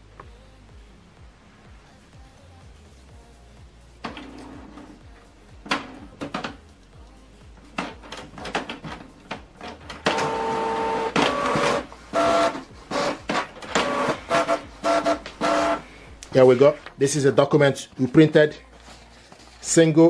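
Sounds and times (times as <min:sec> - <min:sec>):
printer motor whine: 0:10.0 - 0:15.8.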